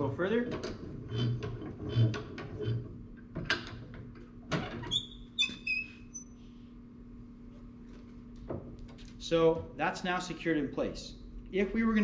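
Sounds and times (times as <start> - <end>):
vise short high squeaks: 4.8 - 6.4.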